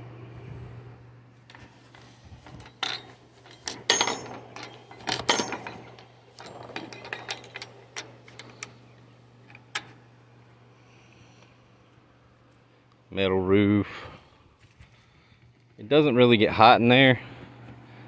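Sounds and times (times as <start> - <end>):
wire panel rattling: 1.6 - 8.8.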